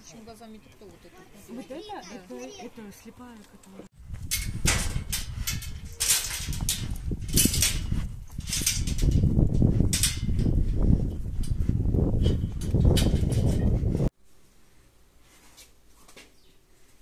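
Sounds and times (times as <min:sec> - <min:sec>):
wind rumbling on microphone: 0:04.0 - 0:14.1.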